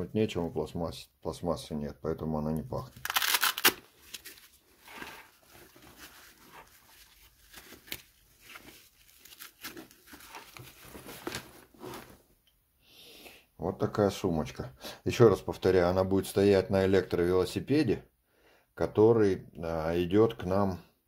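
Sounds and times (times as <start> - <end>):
fabric bag rustling and scraping: 4.2 - 12.3.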